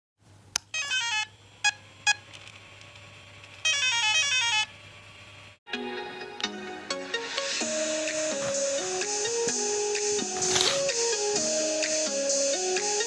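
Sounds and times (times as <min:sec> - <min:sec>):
music: 0:05.7 - 0:13.0.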